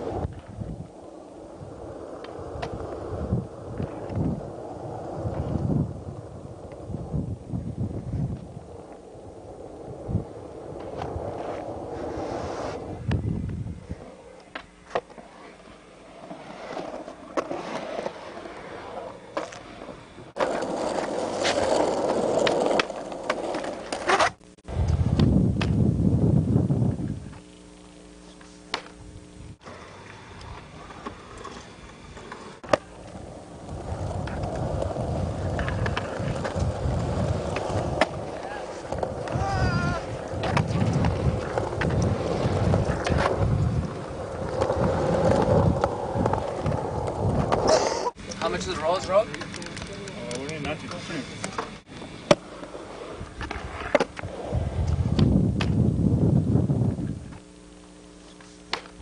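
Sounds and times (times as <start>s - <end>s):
skateboard wheels rolling on concrete: 0.0s - 59.0s
skateboard clacking on concrete: 20.4s - 24.4s, 49.2s - 52.7s.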